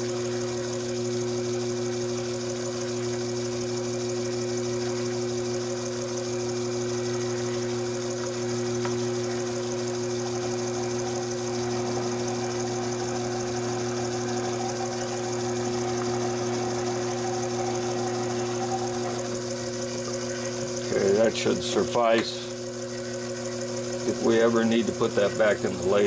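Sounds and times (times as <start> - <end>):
drill cutting steel: 0.0 - 26.0
lathe motor hum: 0.0 - 26.0
high whine: 6.9 - 26.0.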